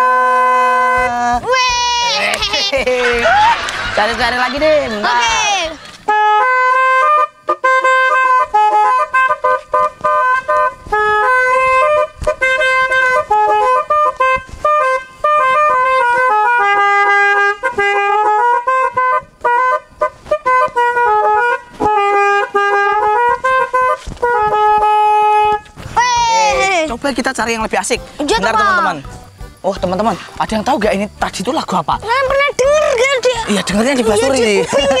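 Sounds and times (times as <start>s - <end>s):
musical horn melody: 0.0s - 2.8s, 6.0s - 25.8s.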